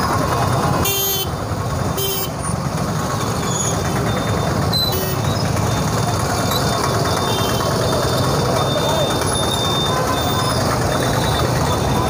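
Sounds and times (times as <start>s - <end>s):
street traffic rumble: 0.0s - 12.0s
vehicle horn toot: 0.8s - 1.3s, 2.0s - 2.4s, 7.2s - 7.8s.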